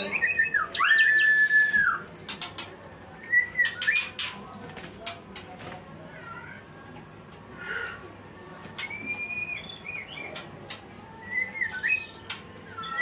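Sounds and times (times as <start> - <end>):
bird singing whistled notes: 0.0 - 2.0, 8.8 - 10.3, 11.2 - 13.0.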